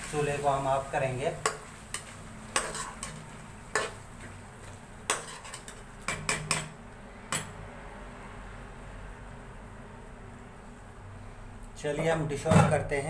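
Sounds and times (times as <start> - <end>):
metal spatula scraping a pan: 1.0 - 7.5.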